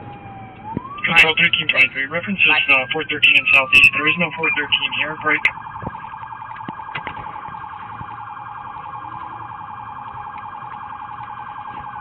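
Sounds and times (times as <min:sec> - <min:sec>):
police siren warbling: 0:00.0 - 0:12.0.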